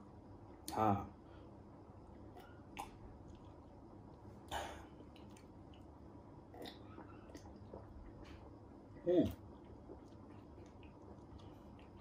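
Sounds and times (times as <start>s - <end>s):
person gulping: 4.4s - 12.0s.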